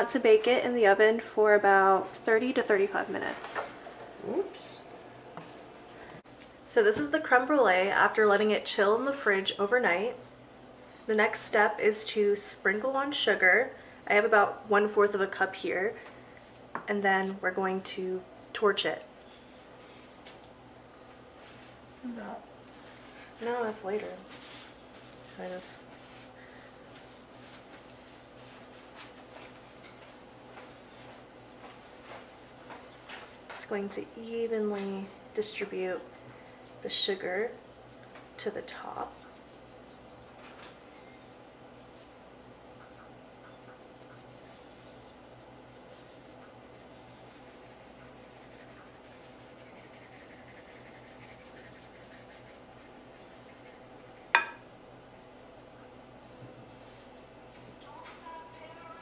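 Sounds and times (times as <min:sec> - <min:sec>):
low steady hum: 0:00.0 - 0:59.0
sugar sprinkling rustle: 0:22.8 - 0:59.0.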